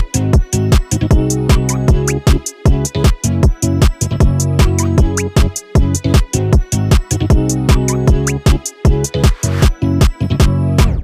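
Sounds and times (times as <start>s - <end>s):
electronic dance music: 0.0s - 11.0s
fast kick drum beat: 0.0s - 11.0s
steady bass line: 0.0s - 11.0s.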